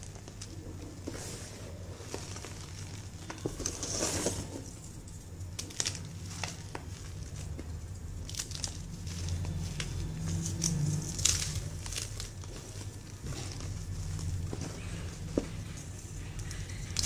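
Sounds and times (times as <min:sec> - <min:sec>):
chalk powder rustling: 0:00.0 - 0:05.3
chalk crumbling in fingers: 0:00.0 - 0:17.0
chalk pieces crackling: 0:00.0 - 0:17.0.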